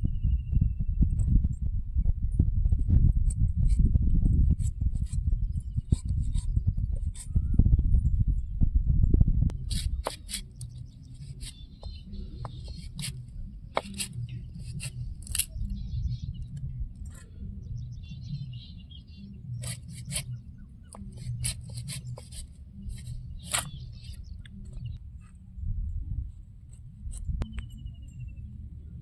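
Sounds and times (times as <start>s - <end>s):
low steady rumble: 0.0s - 29.0s
knife cutting green mango: 13.8s - 15.6s, 19.6s - 22.4s.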